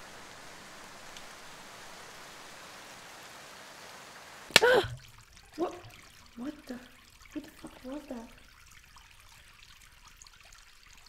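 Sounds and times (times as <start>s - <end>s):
steady rain falling: 0.0s - 8.5s
short loud cry: 4.5s - 5.0s.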